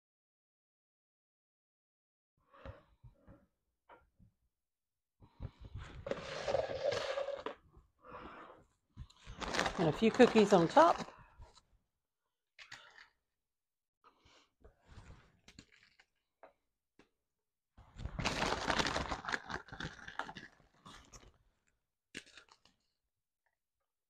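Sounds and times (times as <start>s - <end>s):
cookies crunching: 15.4s - 16.2s, 18.2s - 21.3s, 22.2s - 23.0s.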